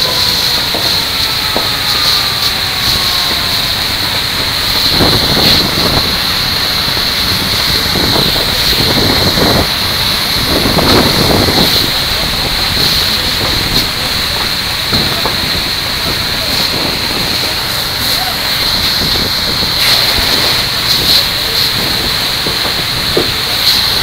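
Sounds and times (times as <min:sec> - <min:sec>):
fire hose spraying water: 0:00.0 - 0:24.0
thumps and splashes: 0:00.0 - 0:24.0.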